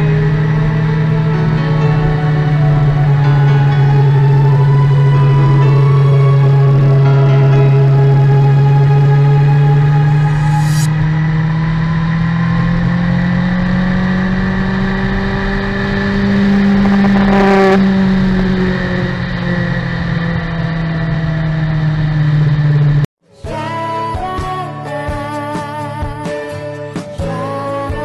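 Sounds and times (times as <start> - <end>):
motorcycle engine running: 0.0 - 23.1
wind rush: 8.1 - 22.7.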